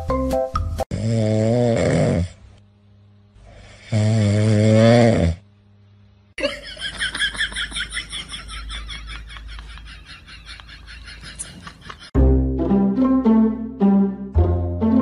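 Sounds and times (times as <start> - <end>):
dog snoring: 0.9 - 2.4, 3.5 - 5.4.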